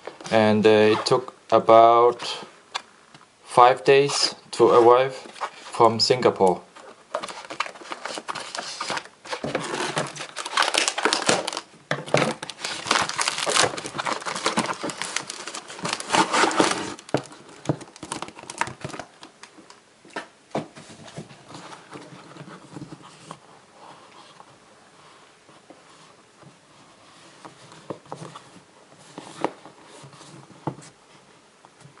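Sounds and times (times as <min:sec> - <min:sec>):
plastic packaging crinkling: 0:07.0 - 0:19.5.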